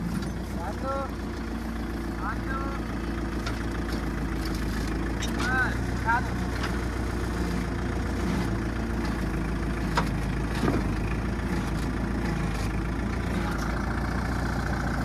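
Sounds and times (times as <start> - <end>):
diesel tractor engine idling: 0.0 - 15.0.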